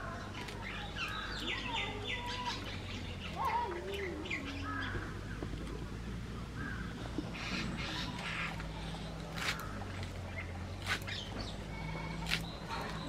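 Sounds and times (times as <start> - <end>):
birds chirping and whistling: 0.0 - 5.5, 6.8 - 13.0
stems being cut clicks: 12.2 - 13.0.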